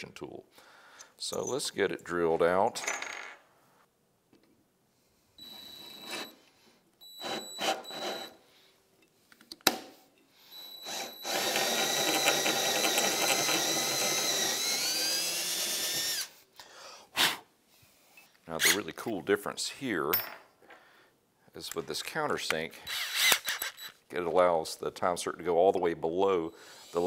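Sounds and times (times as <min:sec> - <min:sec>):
cordless drill drilling into metal: 0:07.2 - 0:08.4, 0:10.6 - 0:16.3, 0:22.9 - 0:24.0
drill trigger click: 0:10.8 - 0:15.0.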